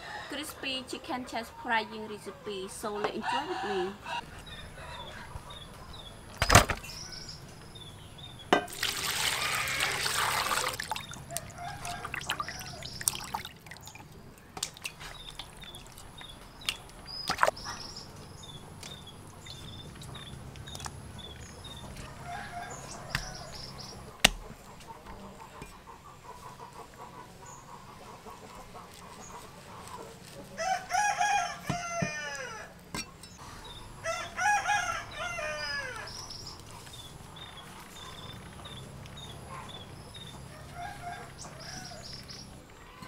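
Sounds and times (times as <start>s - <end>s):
birds chirping: 0.3s - 30.1s, 31.2s - 43.0s
water splashing in metal basin: 8.6s - 17.6s.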